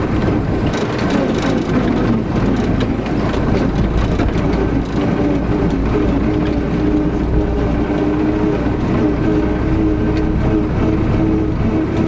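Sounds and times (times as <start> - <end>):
clicks and rattles: 0.0 - 8.6
tractor diesel engine running: 0.0 - 12.0.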